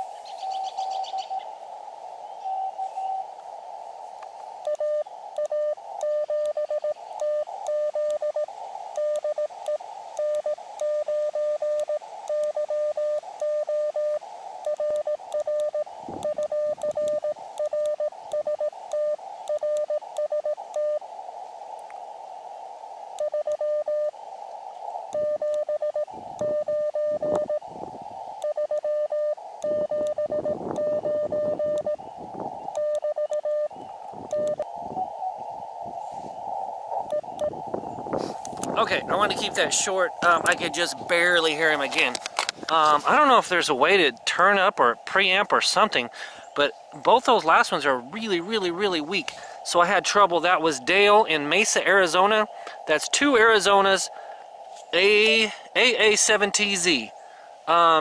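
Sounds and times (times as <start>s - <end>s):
receiver hiss: 0.0s - 58.0s
morse code tone: 4.6s - 21.0s, 23.2s - 24.1s, 25.1s - 27.6s, 28.4s - 32.0s, 32.7s - 34.6s.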